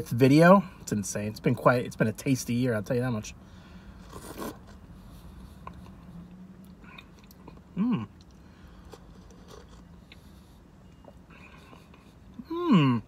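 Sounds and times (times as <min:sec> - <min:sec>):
person sipping and chewing soup: 0:03.8 - 0:12.4
person humming: 0:07.8 - 0:08.1.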